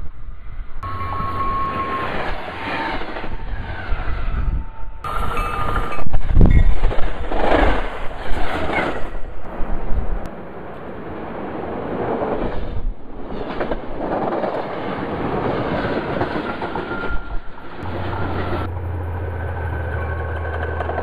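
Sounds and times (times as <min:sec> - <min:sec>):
diesel locomotive engine hum: 0:00.0 - 0:07.0, 0:15.1 - 0:21.0
train rolling on rails: 0:00.0 - 0:21.0.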